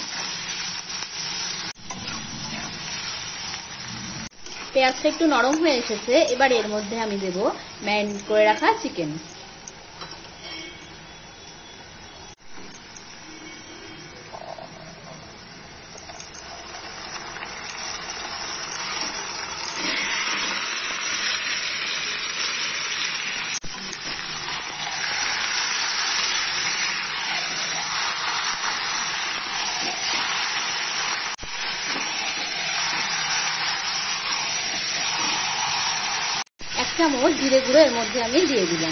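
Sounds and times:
chicken sizzling in hot oil: 0:00.0 - 0:11.0, 0:12.1 - 0:38.9.

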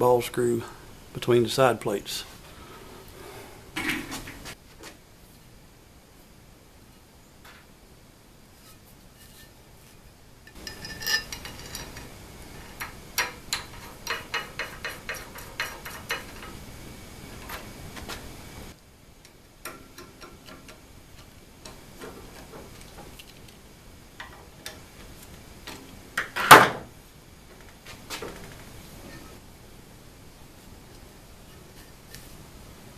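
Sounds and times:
metal plate clinking against frame: 0:10.5 - 0:12.0.

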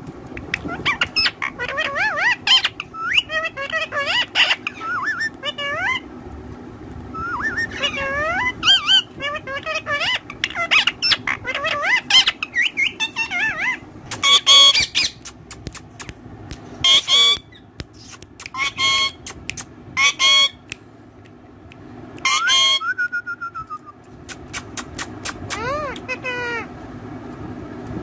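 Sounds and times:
parakeets chattering: 0:00.3 - 0:06.1, 0:07.2 - 0:16.0, 0:16.8 - 0:20.7, 0:24.3 - 0:26.7
parakeet harsh squawks: 0:00.6 - 0:06.0, 0:07.2 - 0:15.2, 0:16.8 - 0:19.4, 0:20.0 - 0:20.6, 0:22.2 - 0:22.9
falling whistle: 0:22.3 - 0:24.0.

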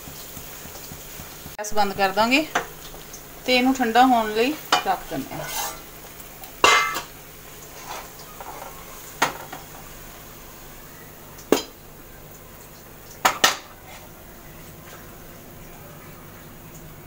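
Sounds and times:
cookware and utensils clinking: 0:01.8 - 0:09.9, 0:11.4 - 0:11.8, 0:13.2 - 0:14.1
scraping food out of a pan: 0:05.2 - 0:05.9, 0:07.6 - 0:09.0, 0:13.7 - 0:14.1.

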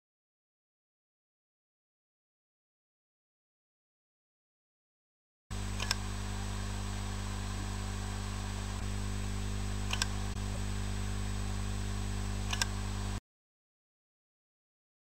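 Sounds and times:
hard drive clicks: 0:05.5 - 0:13.2
steady low hum: 0:05.5 - 0:13.2.

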